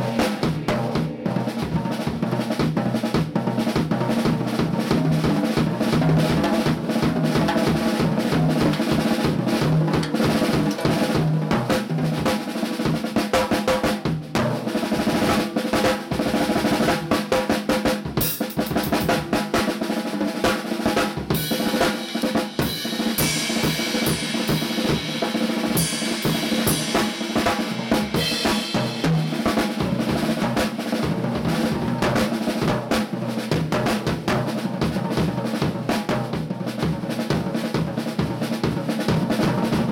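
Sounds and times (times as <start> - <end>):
cymbal crash: 0.0 - 2.7, 21.4 - 30.3
bass drum: 0.0 - 13.1, 21.1 - 39.9
drum kit groove: 0.0 - 39.9
snare drum: 0.0 - 39.9.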